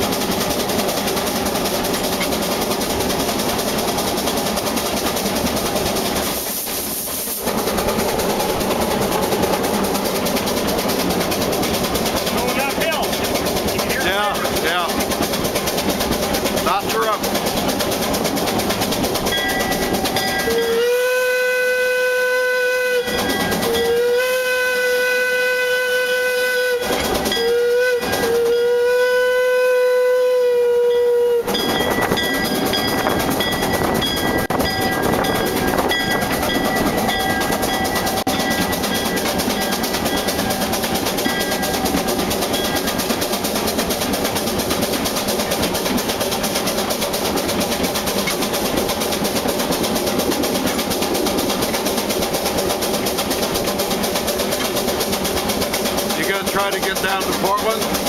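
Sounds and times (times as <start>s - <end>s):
train rumbling and clattering on rails: 0.0s - 58.0s
steam whistle blasts: 20.4s - 31.6s.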